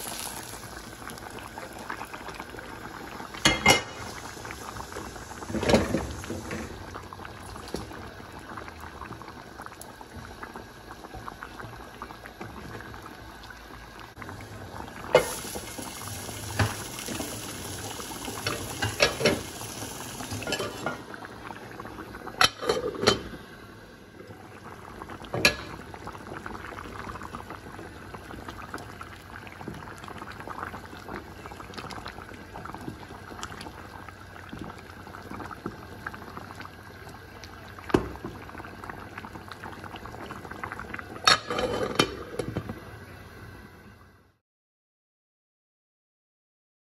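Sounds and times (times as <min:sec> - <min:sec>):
pot boiling and bubbling: 0:00.0 - 0:44.1.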